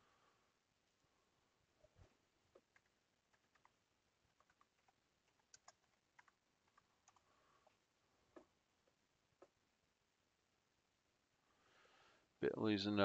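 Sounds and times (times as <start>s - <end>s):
typing on keyboard: 2.6s - 7.3s.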